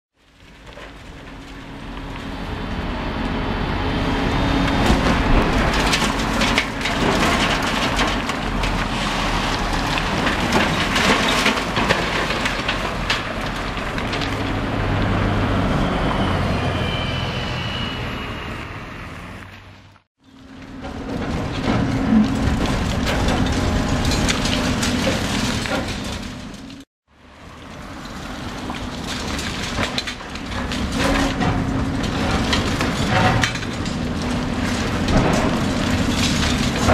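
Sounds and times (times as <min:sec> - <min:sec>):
concrete crunching and cracking: 0:00.1 - 0:02.9, 0:04.6 - 0:15.1, 0:20.2 - 0:36.9
falling debris: 0:04.6 - 0:15.5, 0:20.2 - 0:26.9, 0:27.6 - 0:36.9.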